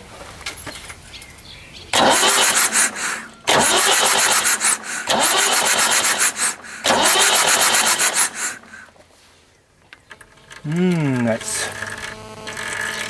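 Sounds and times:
starter cranking diesel engine: 2.0s - 8.9s.

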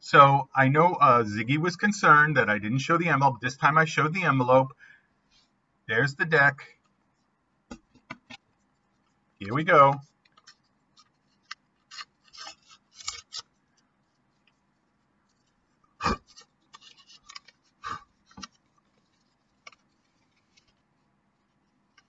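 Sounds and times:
paper envelope rustling: 8.2s - 22.0s.

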